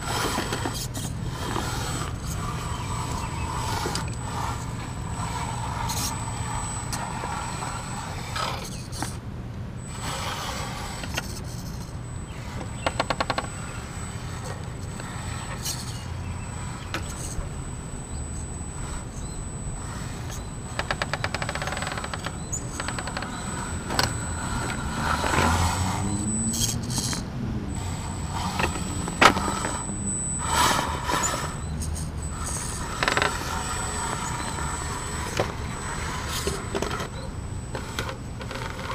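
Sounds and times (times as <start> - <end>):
electric motor whining: 0.0 - 9.2, 9.8 - 38.9
tyres scraping on stone: 0.0 - 9.2.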